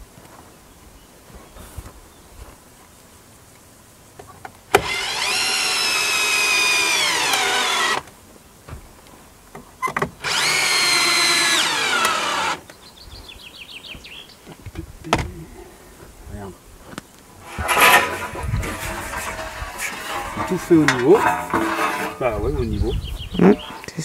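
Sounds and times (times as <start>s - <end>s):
cordless drill whining into wood: 4.7s - 8.1s, 10.2s - 12.6s.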